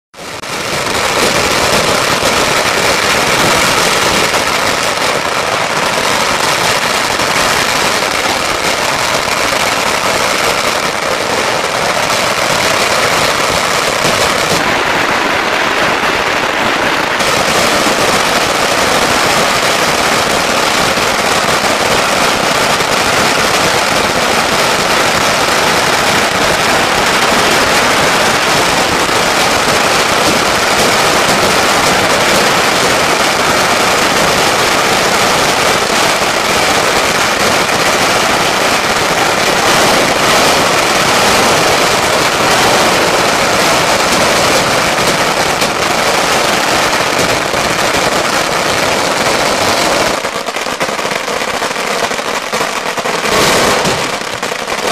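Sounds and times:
firecrackers crackling: 0.2s - 54.9s.

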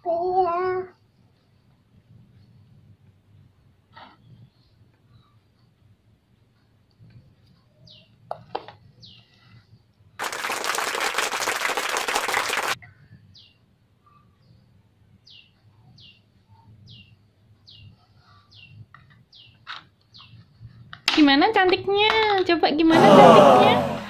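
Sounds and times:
loud rushing noise: 22.9s - 24.0s.

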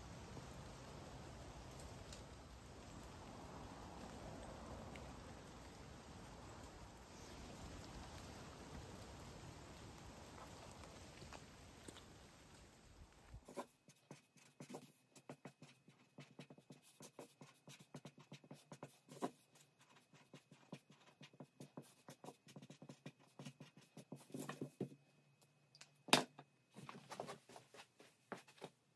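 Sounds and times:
marker pen scratching on paper: 13.4s - 25.0s.

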